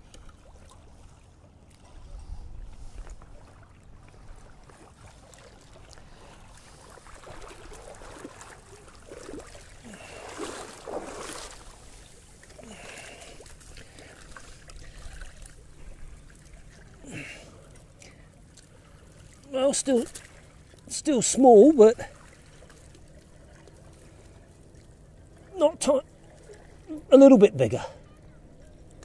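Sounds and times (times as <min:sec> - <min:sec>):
water splashing: 0:00.0 - 0:29.0
wind rumble on microphone: 0:01.8 - 0:04.9
wet seaweed rustling: 0:04.8 - 0:21.0.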